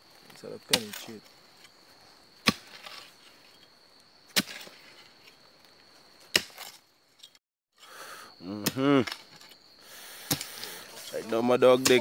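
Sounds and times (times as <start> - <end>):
soil and roots crunching: 0.0 - 7.2, 10.2 - 12.0.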